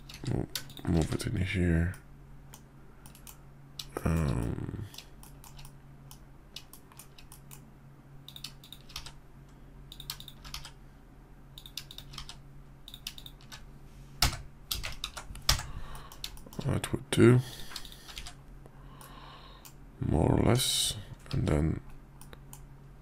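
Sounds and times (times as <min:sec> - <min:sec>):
person murmuring: 0:03.9 - 0:05.0
computer keyboard key presses: 0:08.3 - 0:09.2, 0:09.9 - 0:10.8, 0:11.6 - 0:13.6, 0:14.2 - 0:16.7.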